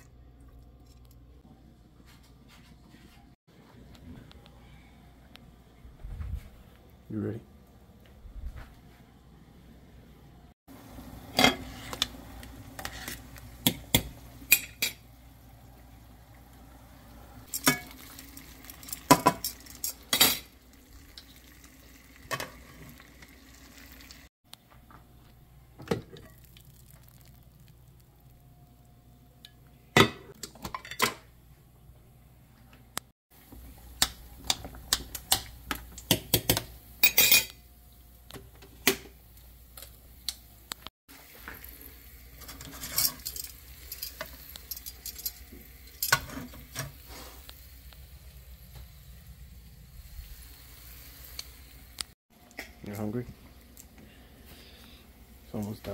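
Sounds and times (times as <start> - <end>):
faint frying sizzle: 10.7 - 24.3, 24.9 - 29.8, 33.4 - 55.9.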